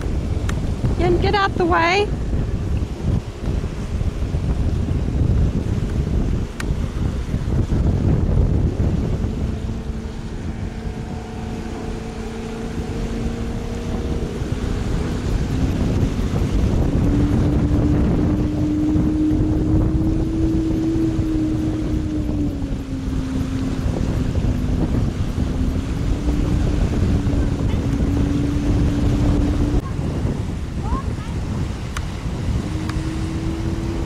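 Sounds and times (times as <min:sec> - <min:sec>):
outboard motor running: 0:00.0 - 0:34.0
wind buffeting microphone: 0:00.0 - 0:34.0.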